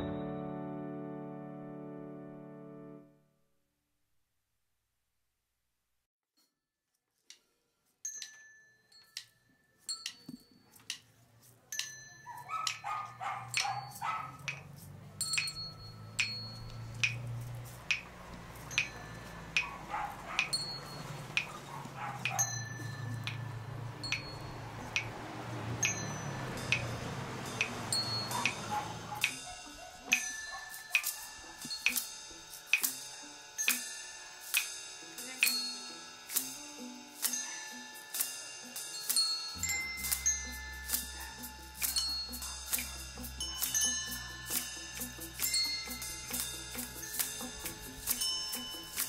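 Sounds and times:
dog barking: 12.3 - 14.5, 19.6 - 20.6, 21.4 - 22.6, 28.3 - 31.4.

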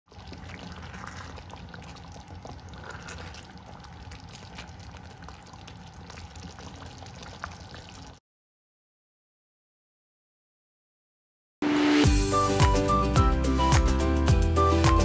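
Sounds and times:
wooden spoon stirring: 0.1 - 5.1
thick sauce bubbling: 0.1 - 8.2.

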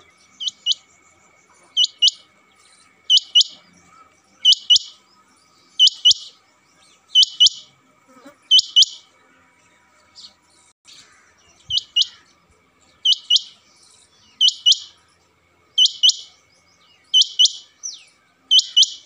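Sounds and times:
quail calling sharp double notes: 1.8 - 2.2, 3.1 - 3.6, 4.4 - 5.0, 5.8 - 6.4, 7.2 - 7.7, 8.5 - 9.0, 13.1 - 13.6, 14.4 - 14.9, 15.8 - 16.3, 17.2 - 17.7, 18.5 - 19.0.

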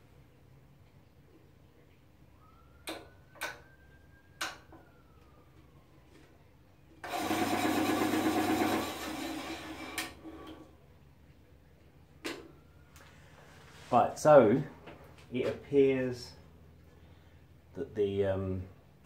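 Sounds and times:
loud mechanical buzzing rattle: 7.0 - 10.0.

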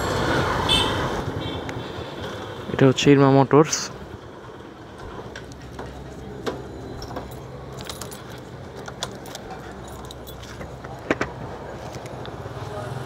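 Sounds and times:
light metallic clicks and jingles: 5.3 - 11.1.

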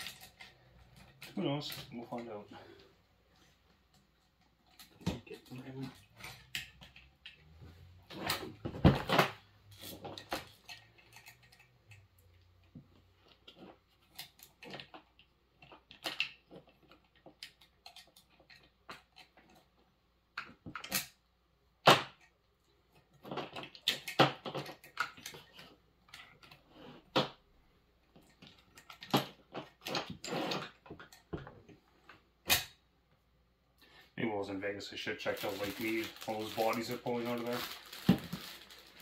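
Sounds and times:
metallic clicks and rattles: 9.7 - 12.7.

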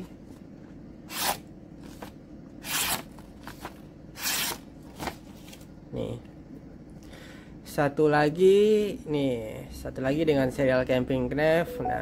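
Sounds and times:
knife slicing paper: 1.1 - 1.4, 2.6 - 3.2, 4.2 - 5.2
paper rustling: 1.8 - 5.7.

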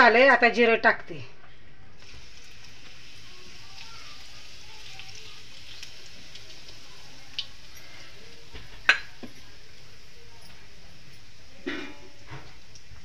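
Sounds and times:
seeds sizzling in hot oil: 2.0 - 13.0.

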